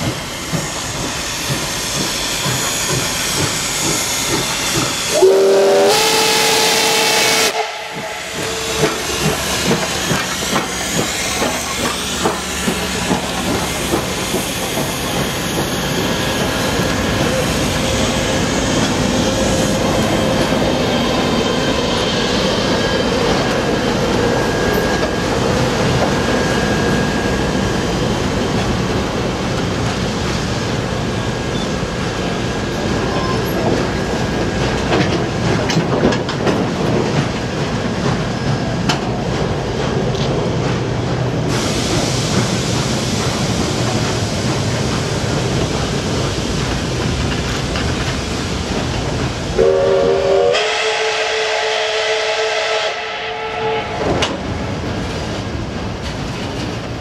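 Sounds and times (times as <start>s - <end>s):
train wheels rumbling on rails: 0.0s - 57.0s
train whistle: 5.1s - 9.9s, 49.6s - 54.4s.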